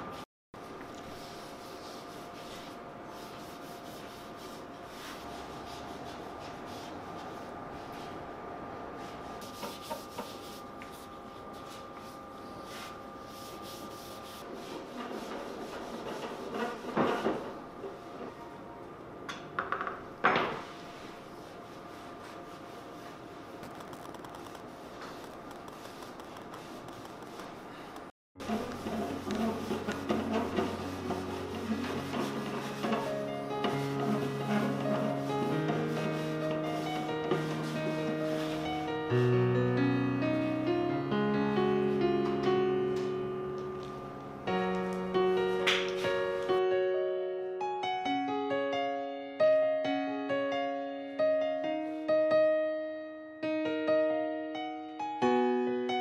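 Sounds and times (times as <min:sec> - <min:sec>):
faint workshop hum: 0:00.0 - 0:39.2
cloth rubbing on wood: 0:01.1 - 0:08.2, 0:09.0 - 0:17.6, 0:20.9 - 0:27.7, 0:28.4 - 0:39.0.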